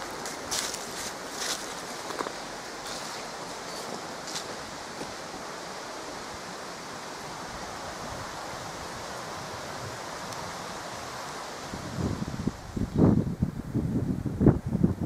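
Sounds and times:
wind rushing hiss: 0.0s - 15.0s.

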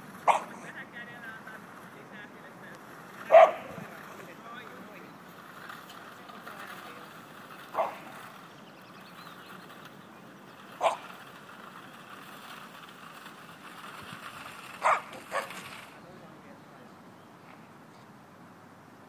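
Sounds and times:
dog barking: 0.2s - 0.6s, 3.3s - 3.8s, 7.7s - 8.1s, 10.8s - 11.1s, 14.8s - 15.6s.

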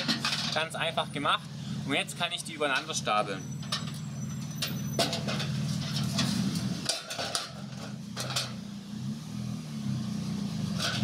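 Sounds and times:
metal cans clanking: 0.0s - 0.7s.

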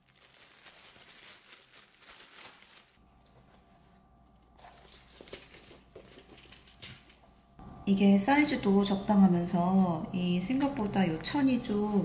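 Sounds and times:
plastic bag crinkling: 0.0s - 3.1s.

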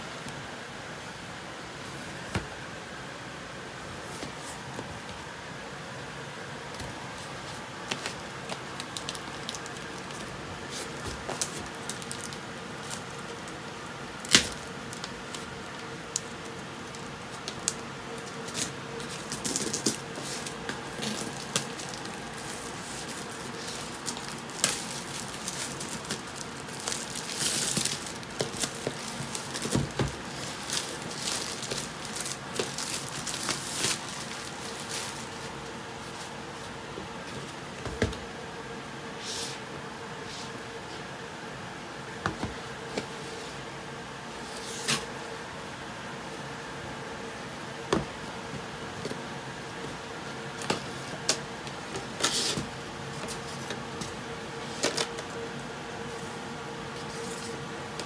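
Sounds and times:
steady background hum: 0.0s - 58.0s
plastic wrap crinkling and tearing: 7.9s - 35.5s.

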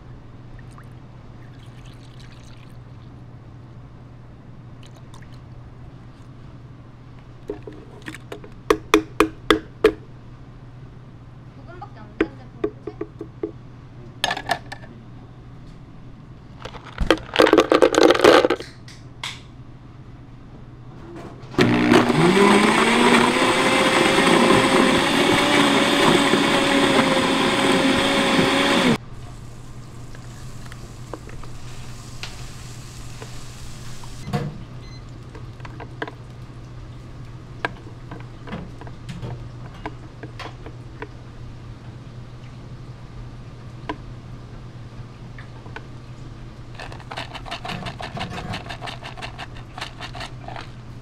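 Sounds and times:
blender motor running: 21.6s - 29.0s.

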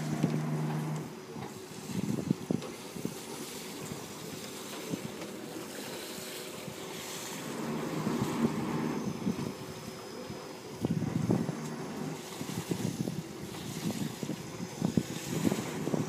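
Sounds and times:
wind buffeting microphone: 0.0s - 3.3s, 7.4s - 16.0s
churning propeller wash: 0.0s - 16.0s.

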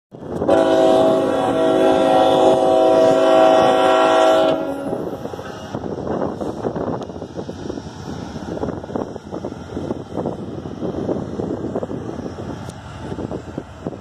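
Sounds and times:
train rumble: 0.1s - 14.0s
wind noise on microphone: 0.1s - 14.0s
locomotive air horn blast: 0.4s - 5.2s.

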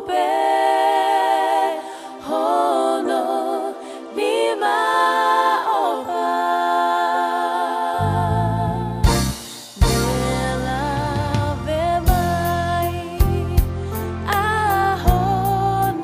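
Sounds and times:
unaccompanied hymn singing: 0.0s - 9.2s.

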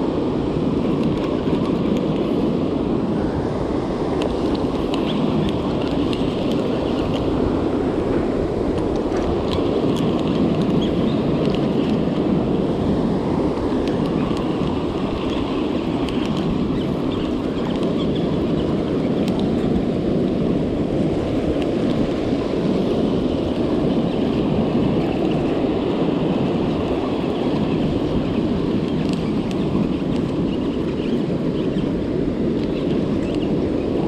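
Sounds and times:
surf on pebble beach: 0.0s - 34.0s
wind buffeting microphone: 0.0s - 34.0s.

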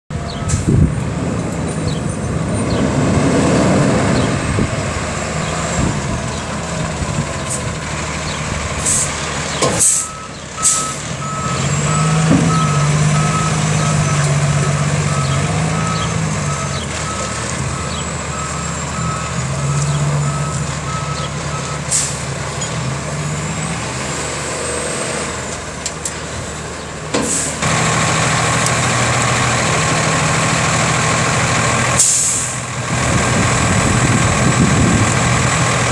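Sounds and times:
truck diesel engine running: 0.1s - 35.9s
air brake hisses: 9.7s - 10.9s, 27.2s - 27.6s, 32.0s - 32.6s.

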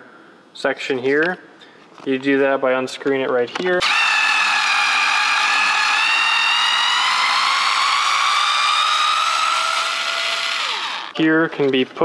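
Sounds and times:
power driver motor whine: 3.8s - 11.2s.

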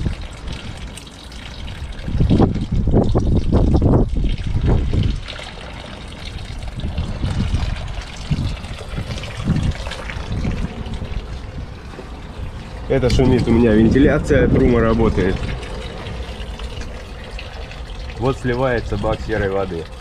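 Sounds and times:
water trickling onto gravel: 0.0s - 20.0s
low rumble: 6.3s - 19.4s.

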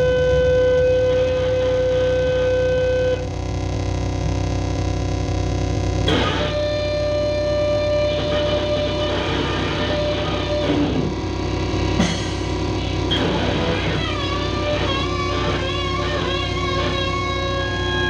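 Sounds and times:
synthesizer bass and drums music: 7.8s - 18.0s
sharp drum hit: 10.6s - 14.5s.

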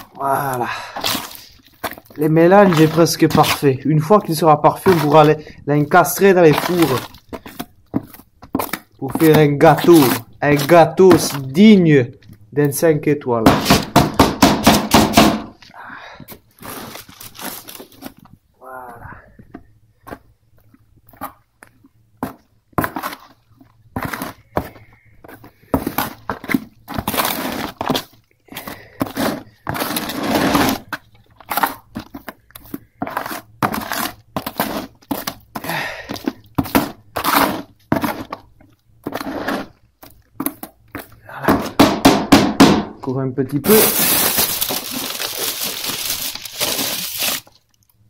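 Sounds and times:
tool scraping gritty paste: 0.4s - 11.8s, 22.2s - 41.2s.

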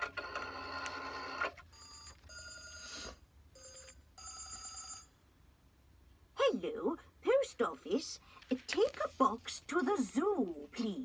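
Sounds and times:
telephone ringing through a speaker: 0.0s - 3.0s, 3.6s - 5.2s.

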